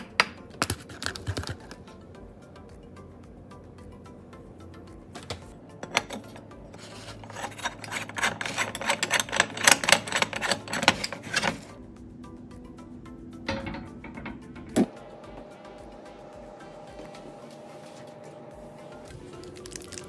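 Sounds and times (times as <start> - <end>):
metal threads scraping and clicking: 5.2 - 11.8.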